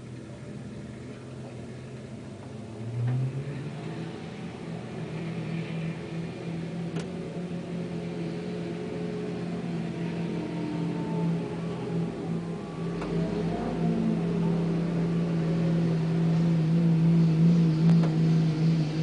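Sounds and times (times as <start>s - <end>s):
truck engine running: 0.0s - 19.0s.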